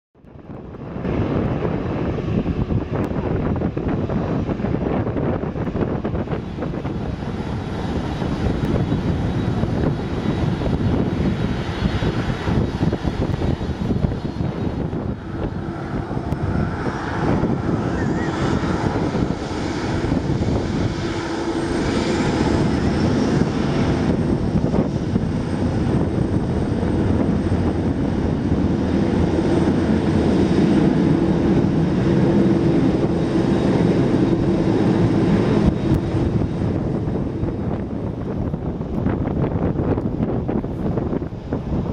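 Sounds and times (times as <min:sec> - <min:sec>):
engine whine: 0:00.2 - 0:41.9
jet engines rumbling: 0:00.2 - 0:41.9.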